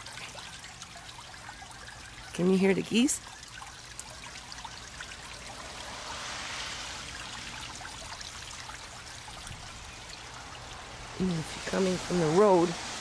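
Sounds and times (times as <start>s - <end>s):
water trickling into pond: 0.0s - 13.0s.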